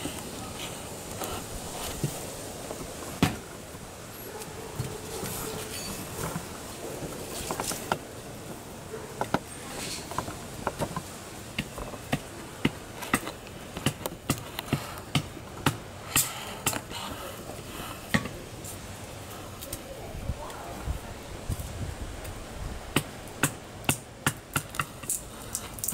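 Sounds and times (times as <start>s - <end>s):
kindling fire crackling: 0.0s - 25.9s
hatchet chopping kindling: 3.2s - 3.5s, 10.0s - 16.9s, 23.0s - 25.9s.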